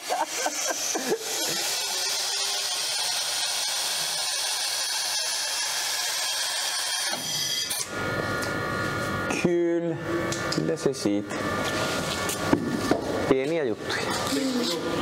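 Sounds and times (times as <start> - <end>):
hydraulic tester hissing and whining: 0.0 - 8.8.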